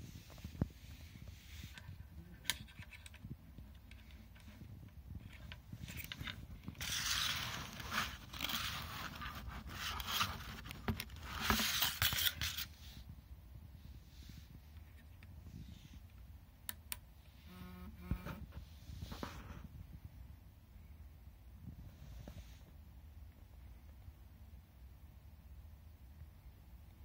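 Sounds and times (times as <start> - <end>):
cable scraping and rustling: 0.0 - 13.1.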